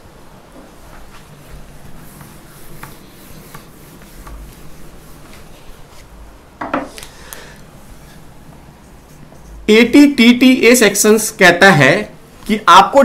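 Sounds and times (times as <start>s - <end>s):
duster rubbing on whiteboard: 0.6s - 6.2s.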